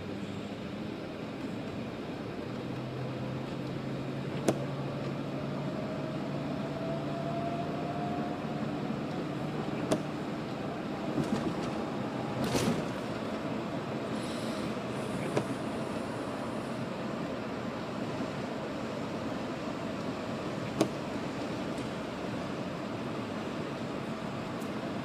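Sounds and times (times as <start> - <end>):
vehicle rumble and road hiss: 0.0 - 25.0
tyres hissing on wet road: 11.9 - 25.0.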